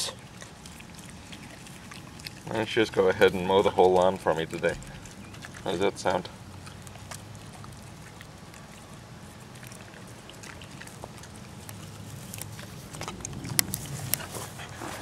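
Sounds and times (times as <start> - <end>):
dogs chewing grass: 0.0 - 15.0
low hum: 8.4 - 15.0.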